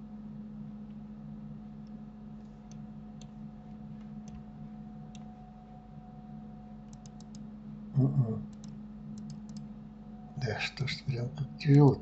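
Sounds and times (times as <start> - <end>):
low electrical hum: 0.0 - 12.0
computer mouse clicks: 1.8 - 3.4, 4.0 - 4.5, 6.9 - 7.5, 8.5 - 9.7.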